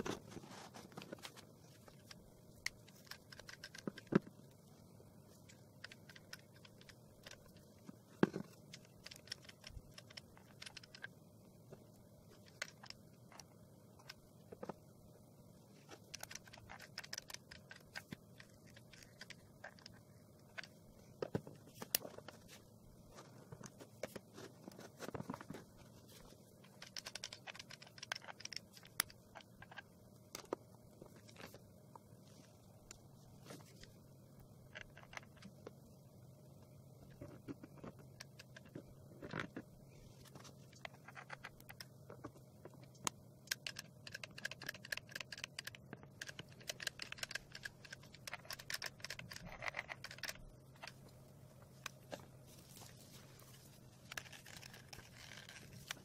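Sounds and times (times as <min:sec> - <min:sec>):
stones clicking on cardboard: 0:40.4 - 0:51.0.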